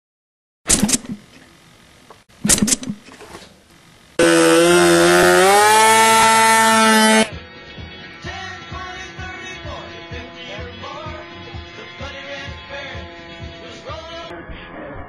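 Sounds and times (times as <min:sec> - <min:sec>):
short loud bursts: 0:04.2 - 0:07.3
model plane engine buzzing: 0:04.2 - 0:07.4, 0:08.2 - 0:14.2.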